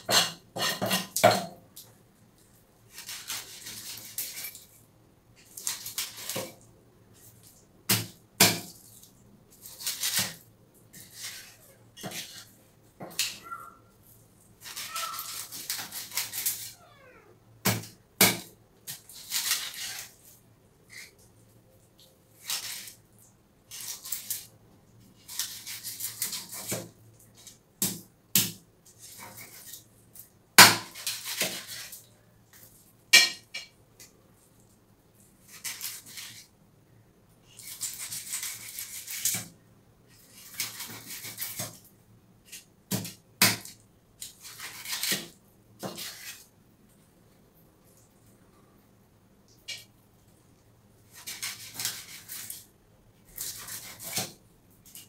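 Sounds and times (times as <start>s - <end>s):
knife slicing through fish: 51.1s - 52.6s, 53.3s - 54.4s.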